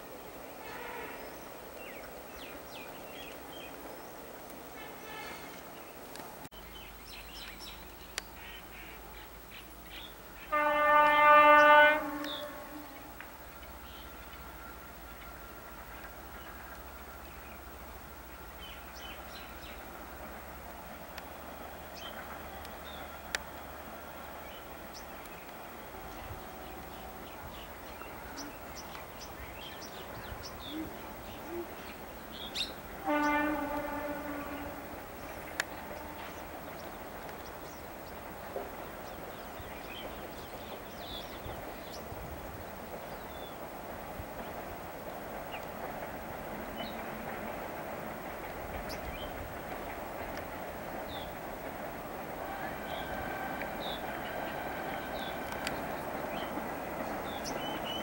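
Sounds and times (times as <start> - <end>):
steady background hiss: 0.0 - 58.0
locomotive horn blast: 4.8 - 5.6, 10.4 - 13.2, 33.0 - 36.6, 52.4 - 56.6
birds chirping: 45.3 - 58.0.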